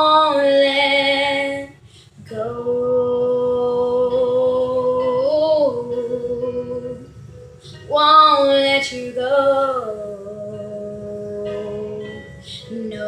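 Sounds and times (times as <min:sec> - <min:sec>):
girl singing: 0:00.0 - 0:13.0
breath: 0:01.8 - 0:02.2.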